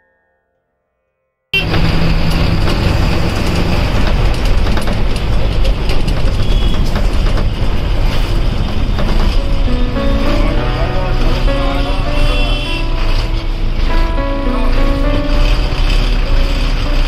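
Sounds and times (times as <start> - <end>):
cabin rattling: 1.6 - 10.3
bus engine and road noise: 1.6 - 17.0.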